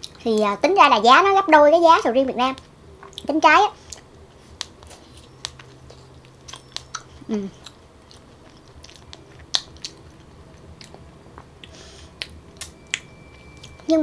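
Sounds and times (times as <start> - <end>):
close-up chewing: 3.0 - 13.9.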